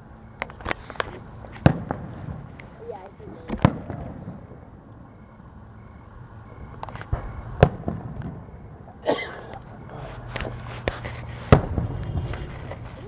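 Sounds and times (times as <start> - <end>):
fireworks bangs: 0.5 - 4.8, 6.9 - 8.9, 10.1 - 13.0.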